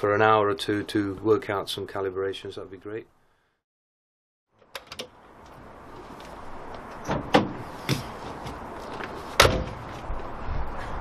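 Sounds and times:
door knocks and bangs: 0:07.1 - 0:08.0.

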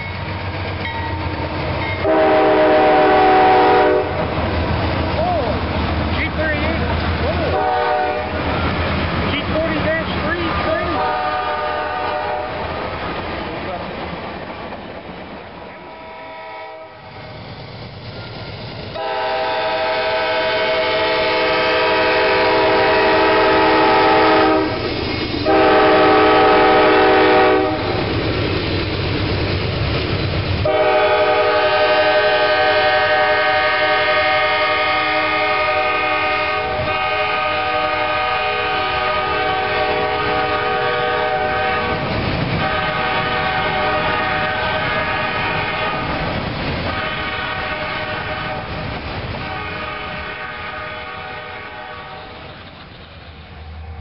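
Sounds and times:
freight train cars rumbling: 0:00.0 - 0:54.0
diesel locomotive horn blasts: 0:02.0 - 0:04.3, 0:07.5 - 0:08.4, 0:10.7 - 0:12.7, 0:15.8 - 0:17.0, 0:19.0 - 0:24.8, 0:25.4 - 0:28.0, 0:30.6 - 0:46.2, 0:46.8 - 0:48.8, 0:49.4 - 0:52.4.

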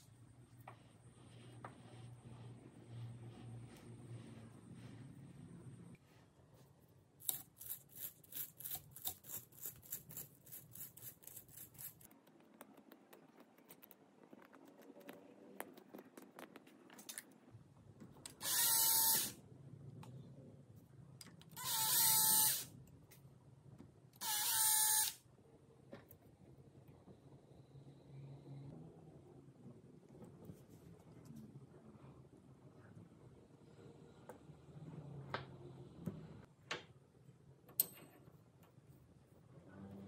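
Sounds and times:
cordless drill whirring: 0:18.4 - 0:19.3, 0:21.6 - 0:22.7, 0:24.2 - 0:25.2.

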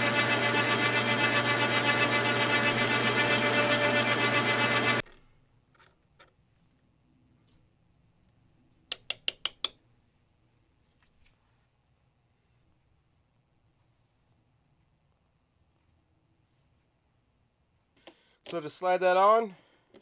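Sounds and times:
lathe humming and whirring: 0:00.0 - 0:05.0.

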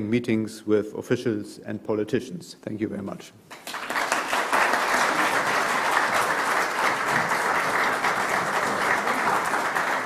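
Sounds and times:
audience applauding: 0:03.5 - 0:10.0.

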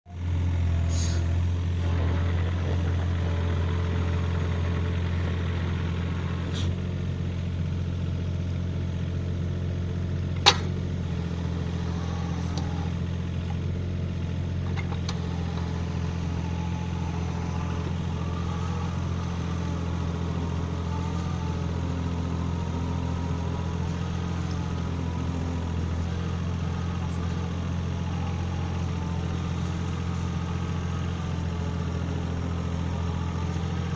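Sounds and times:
mini excavator engine running: 0:00.1 - 0:33.9
hydraulic auger boring into soil: 0:10.4 - 0:33.9.

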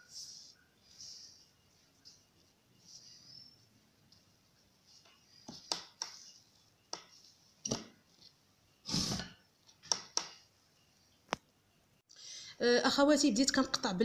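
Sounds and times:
hands rolling dough on tablecloth: 0:00.0 - 0:08.6
tablecloth rustle: 0:00.0 - 0:09.8.

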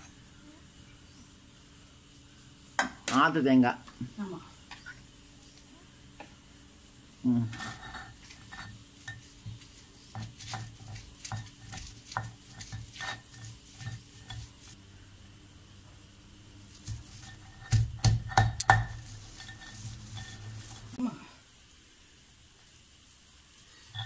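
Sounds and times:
stone grinding on stone: 0:07.5 - 0:08.8, 0:16.9 - 0:21.0
stone roller knocking: 0:16.9 - 0:20.9.

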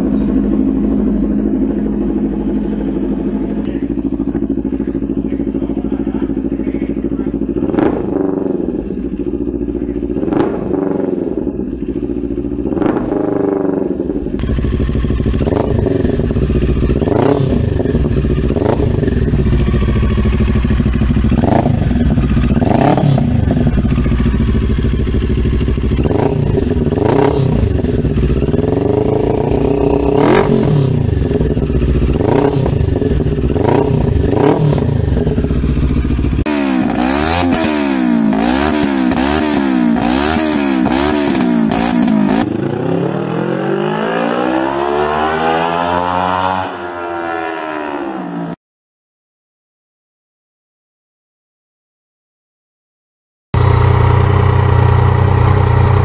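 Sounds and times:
motorcycle engine revving: 0:00.0 - 0:48.6, 0:53.6 - 0:56.0.

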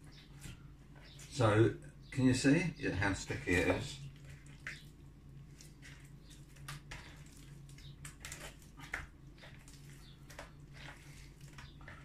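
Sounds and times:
low steady hum: 0:00.0 - 0:12.0
dough squelching while kneaded: 0:03.3 - 0:12.0.

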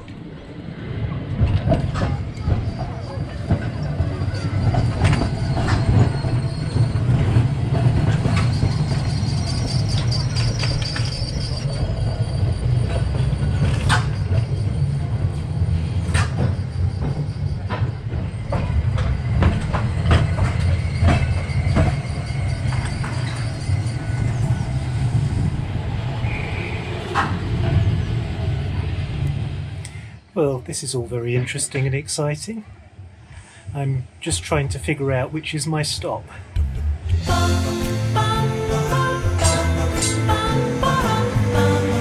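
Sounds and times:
tram wheels rumbling on rails: 0:00.0 - 0:42.0
high wheel squeal: 0:01.9 - 0:28.4.

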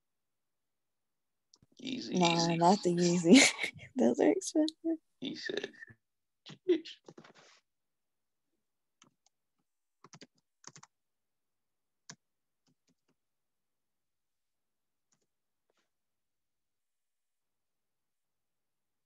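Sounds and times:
computer keyboard keystrokes: 0:10.0 - 0:10.9.

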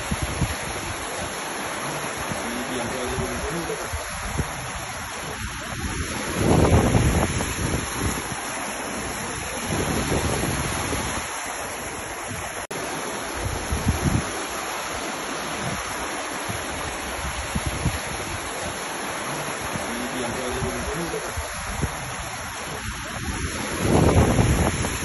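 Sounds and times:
wind buffeting microphone: 0:00.0 - 0:12.6, 0:13.3 - 0:25.0
floodwater rushing: 0:00.0 - 0:25.0.

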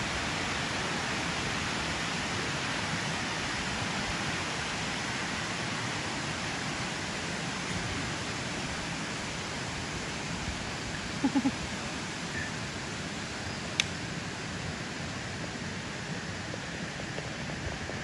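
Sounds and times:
water rushing: 0:00.0 - 0:17.5.

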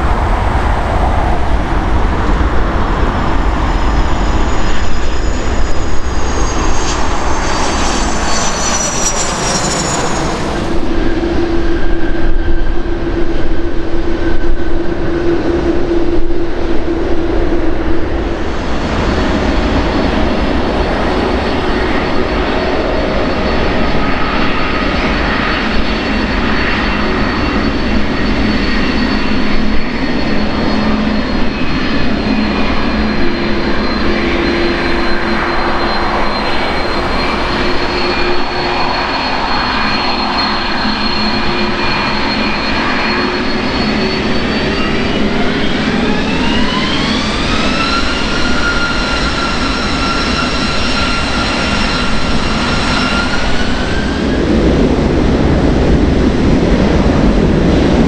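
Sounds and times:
jet engines whining: 0:00.0 - 0:58.0
low rumble of taxiing airliner: 0:00.0 - 0:58.0.

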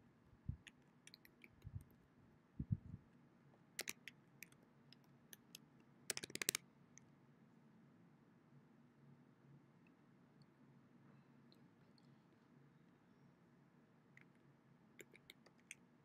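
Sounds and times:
computer keyboard typing: 0:03.8 - 0:04.0, 0:06.1 - 0:06.6.

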